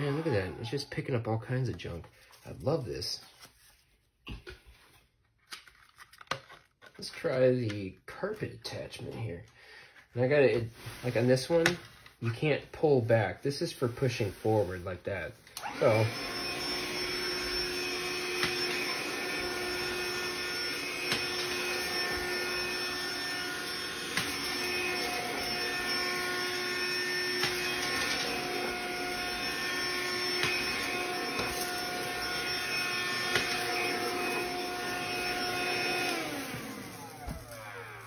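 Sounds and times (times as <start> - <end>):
handheld vacuum cleaner whine: 0.0 - 1.0, 14.2 - 38.0.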